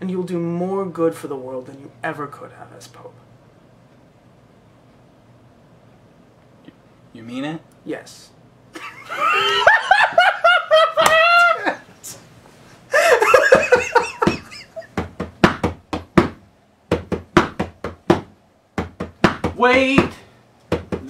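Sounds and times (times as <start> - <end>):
men laughing: 8.7 - 12.0, 12.9 - 15.1
sharp knocks: 14.1 - 21.0.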